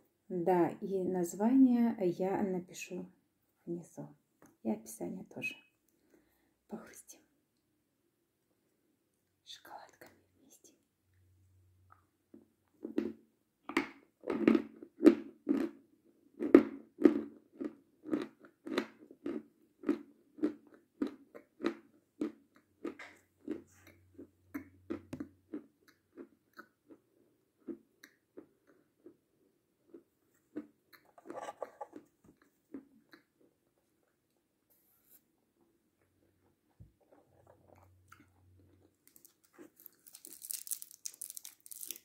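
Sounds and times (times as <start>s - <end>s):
chewing and crunching candy: 12.7s - 34.3s, 36.1s - 42.0s.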